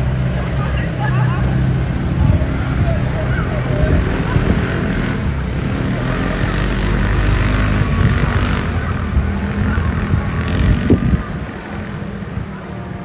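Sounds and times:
motor vehicle rumbling: 0.0s - 13.0s.

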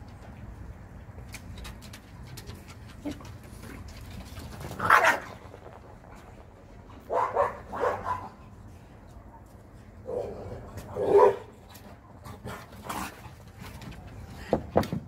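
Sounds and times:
dog barking: 4.8s - 5.3s, 7.1s - 8.4s, 11.0s - 11.5s.

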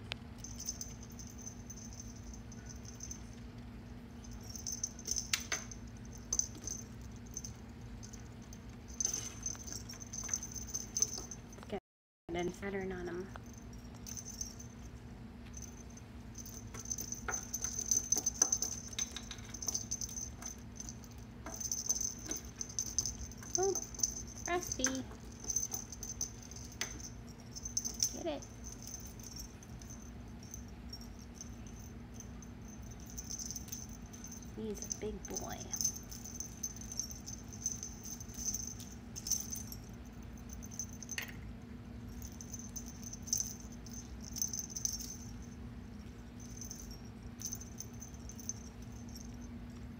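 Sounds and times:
steady low hum: 0.0s - 49.9s
small bell jingling: 0.4s - 11.8s, 13.2s - 41.4s, 42.0s - 49.9s
toy beads clicking and rattling: 9.0s - 11.4s, 16.4s - 31.9s, 32.8s - 39.8s.

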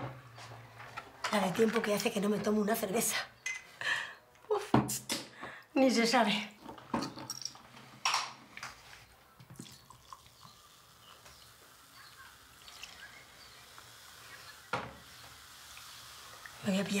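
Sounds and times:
beer trickling into glass: 9.4s - 13.8s.

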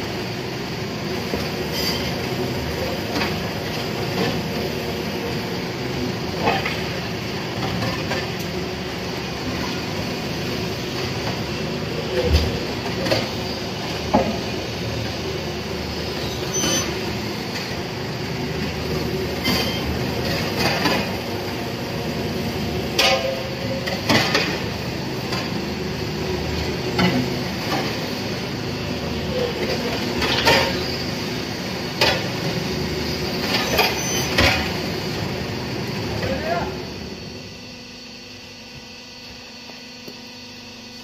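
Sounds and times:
brick-making machine running: 0.0s - 41.0s.

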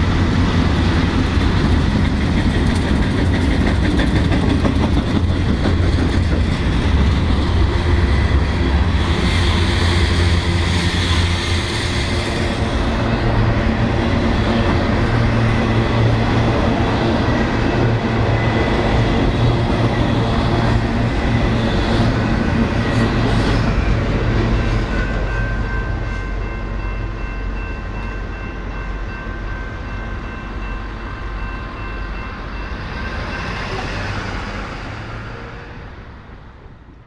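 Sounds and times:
freight train rumbling and clattering: 0.0s - 37.0s
crossing signal bell ringing: 23.9s - 33.8s.

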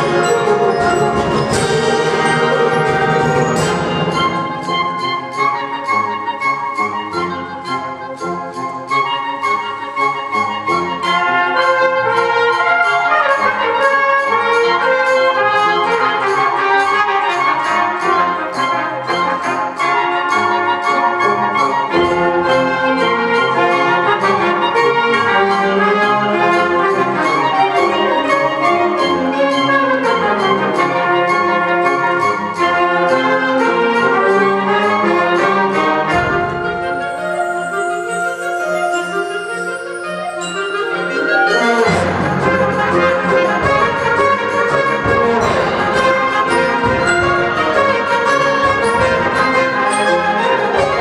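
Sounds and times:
steady percussive beat: 0.0s - 9.0s, 21.8s - 51.0s
brass: 0.0s - 51.0s
wind ensemble playing concert band music: 0.0s - 51.0s.

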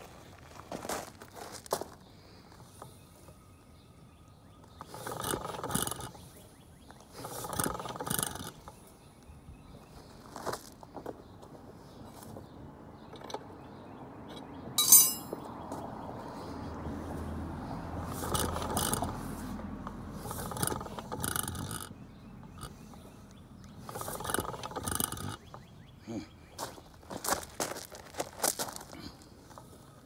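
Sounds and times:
engine clanking and whirring: 4.6s - 9.7s, 12.4s - 26.0s.

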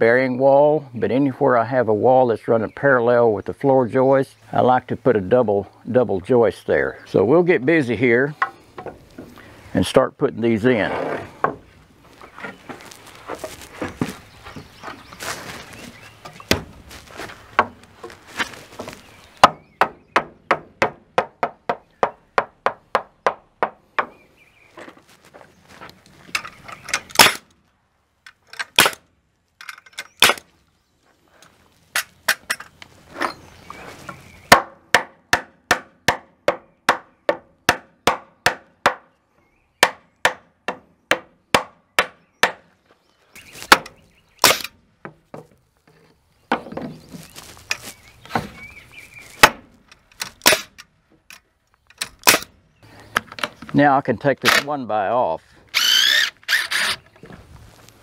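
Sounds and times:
pneumatic nailer shots: 26.9s - 27.5s, 28.6s - 29.0s, 30.2s - 30.4s, 43.7s - 44.8s, 50.2s - 50.8s, 52.0s - 52.5s, 55.7s - 57.0s
hammer striking nails: 34.5s - 39.0s, 39.8s - 42.6s.

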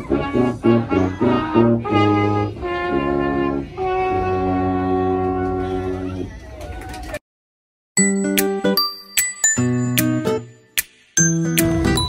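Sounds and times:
small brass band playing: 0.0s - 6.3s.

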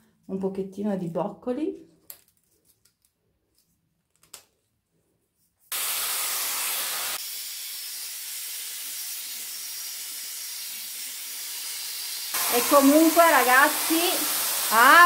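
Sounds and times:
hair styler blower rushing air: 5.7s - 15.0s.

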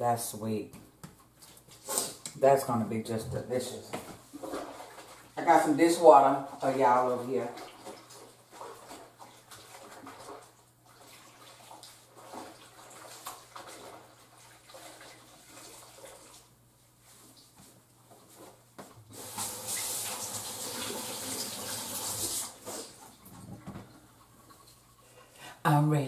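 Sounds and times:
faucet water running into sink: 19.1s - 23.0s.

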